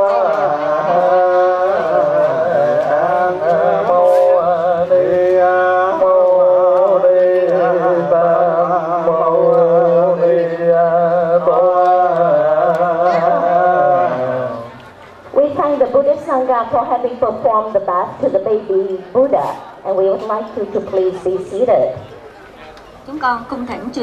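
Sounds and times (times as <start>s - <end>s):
voices chanting slow melody: 0.0s - 15.0s.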